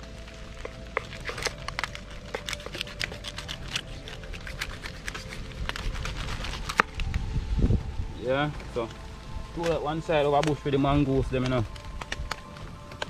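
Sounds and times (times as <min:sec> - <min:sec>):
knife clicking through fish bones: 0:00.6 - 0:06.9.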